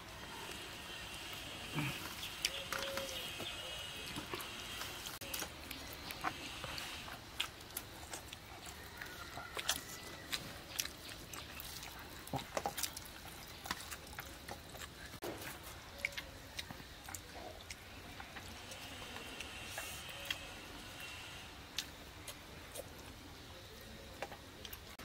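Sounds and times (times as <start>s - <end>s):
chewing and lip smacks: 4.0s - 20.4s, 21.8s - 25.0s.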